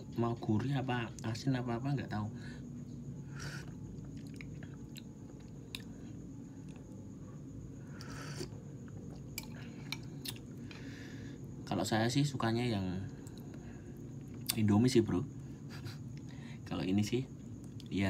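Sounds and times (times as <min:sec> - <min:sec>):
person chewing: 0:03.6 - 0:05.9, 0:08.0 - 0:10.7.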